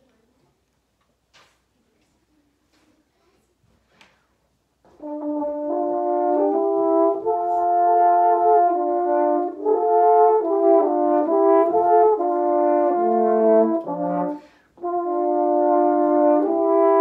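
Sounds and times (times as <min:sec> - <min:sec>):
french horn duet: 0:04.9 - 0:17.0.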